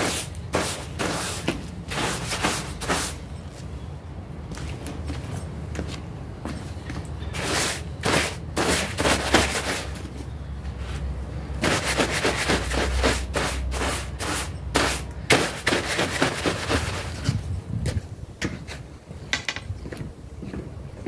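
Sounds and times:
broom scrubbing wet carpet: 0.0 - 3.2, 7.4 - 10.0, 10.8 - 17.3.

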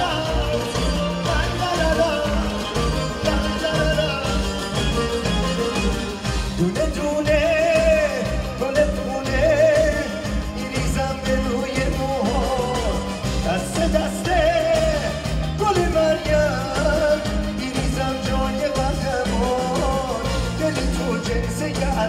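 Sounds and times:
bass and drum beat: 0.0 - 22.0
man singing: 0.0 - 22.0
violins: 0.0 - 22.0.

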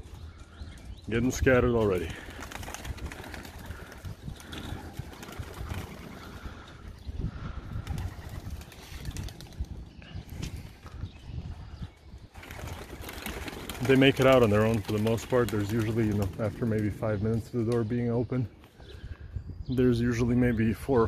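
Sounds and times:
wings flapping: 1.3 - 6.7, 7.4 - 10.6, 12.3 - 17.0
pigeons cooing: 1.7 - 17.1.

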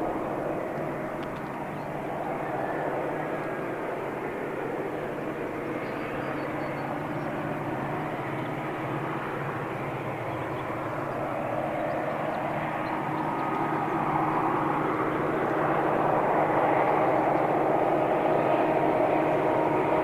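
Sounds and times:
diesel locomotive engines droning: 0.0 - 20.0.

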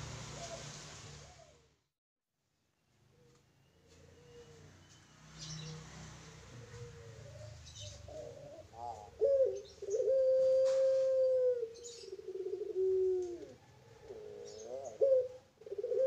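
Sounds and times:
dove cooing: 0.3 - 1.6, 5.4 - 16.0.

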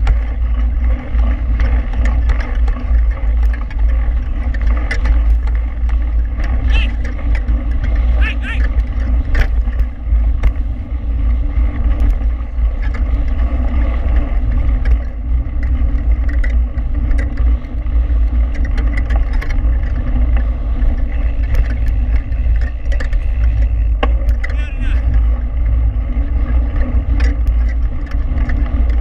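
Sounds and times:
clicks and rattles: 0.0 - 10.6, 14.4 - 25.2
bike tyres rolling on gravel: 0.0 - 29.0.

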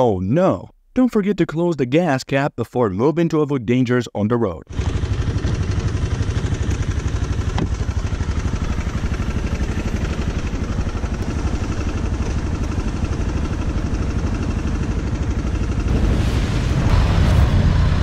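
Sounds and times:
motorcycle engine idling: 4.7 - 15.9.

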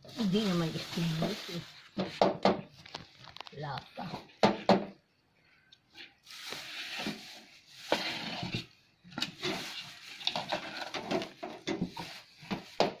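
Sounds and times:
plastic wrapping crinkling: 0.0 - 4.0, 6.2 - 8.0, 9.3 - 12.8.

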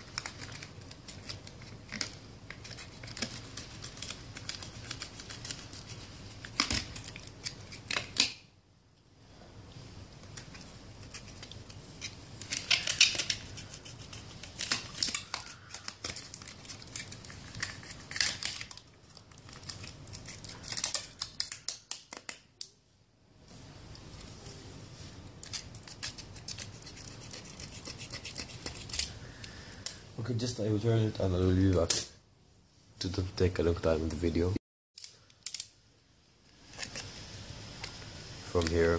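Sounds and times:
knife cutting and scraping plastic: 0.0 - 8.4, 10.3 - 22.6, 25.4 - 29.2, 36.6 - 37.2.

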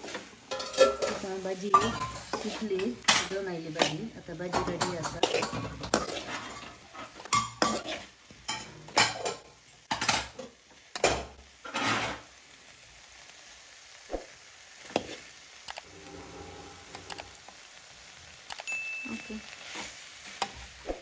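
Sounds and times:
metal ladle scraping a pan: 0.0 - 9.4, 11.6 - 12.2, 15.8 - 17.8
vegetables sizzling: 0.0 - 21.0.

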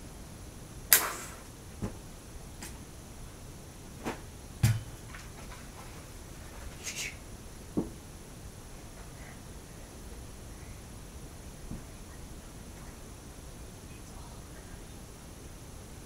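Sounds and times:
room hiss: 0.0 - 16.0
dull thump: 4.0 - 5.4.

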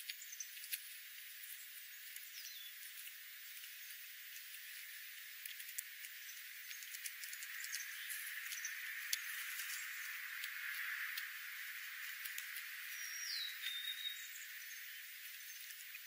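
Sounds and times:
birds pecking clicks: 0.0 - 16.0
faint steady hiss: 0.0 - 16.0
short high bird chirps: 13.0 - 14.4.

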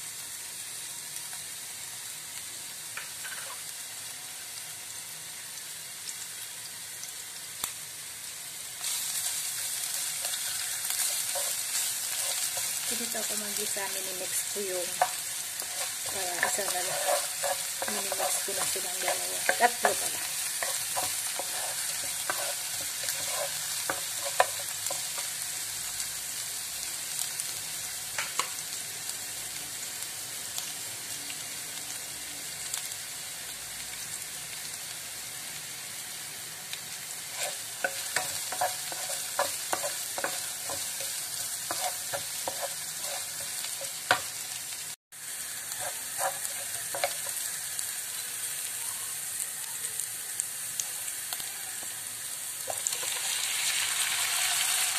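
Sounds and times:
aromatics sizzling in oil: 0.0 - 54.9
wooden spatula scraping pan: 15.0 - 25.2, 37.3 - 44.0, 45.8 - 47.3.

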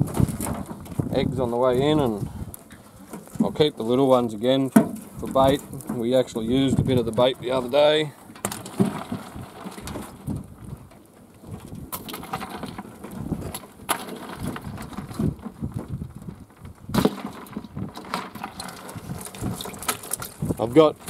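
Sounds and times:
rustling of mesh net: 17.0 - 21.0.

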